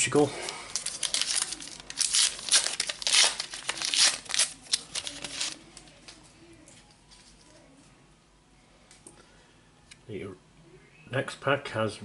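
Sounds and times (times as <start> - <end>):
foil packet crinkling and tearing: 0.4 - 6.2.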